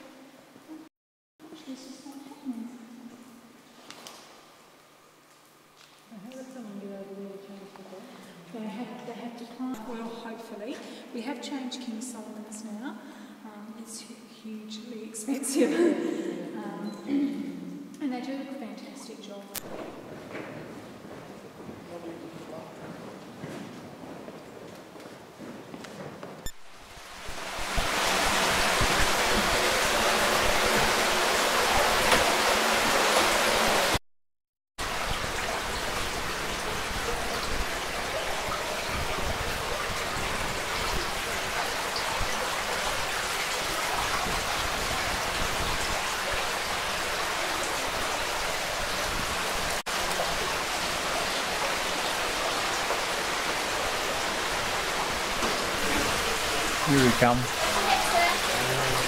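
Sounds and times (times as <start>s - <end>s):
cave stream water rushing: 15.4s - 16.6s, 19.6s - 34.0s, 34.8s - 59.0s.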